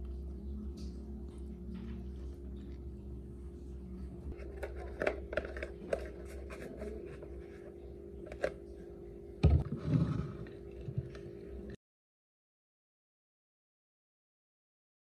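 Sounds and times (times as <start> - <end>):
faint steady hum: 0.0 - 11.8.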